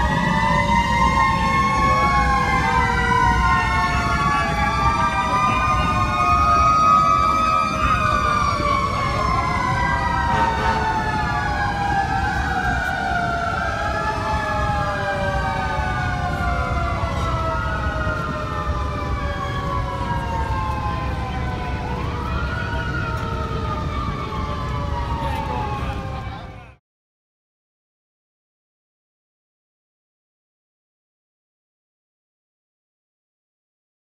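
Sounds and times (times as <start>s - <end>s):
fire truck sirens winding down: 0.0s - 26.8s
siren rising and falling: 0.0s - 26.8s.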